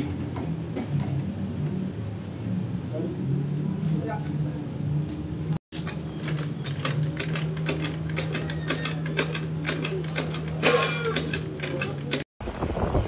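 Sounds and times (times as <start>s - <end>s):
scooter engine running: 4.8s - 12.3s
uneven ticking clatter: 5.7s - 12.3s.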